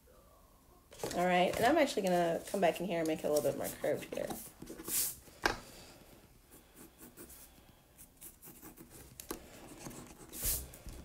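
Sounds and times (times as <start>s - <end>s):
paper rustle: 1.0s - 5.2s
pencil scratching on paper: 6.5s - 10.8s.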